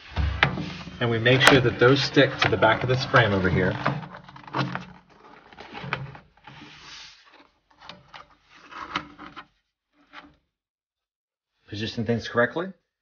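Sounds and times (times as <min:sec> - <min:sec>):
banner rubbing slide: 0:00.0 - 0:07.5.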